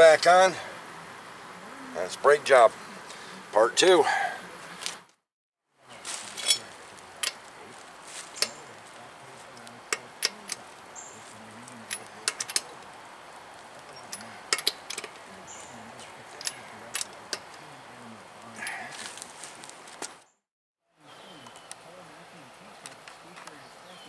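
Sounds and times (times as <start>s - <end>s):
lug wrench clicking on lug nuts: 11.8s - 12.7s, 14.0s - 15.2s.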